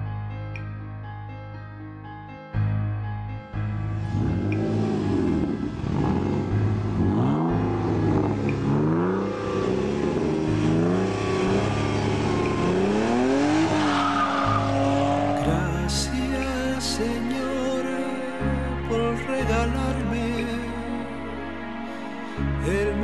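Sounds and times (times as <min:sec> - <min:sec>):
car engine accelerating: 0:03.8 - 0:17.4.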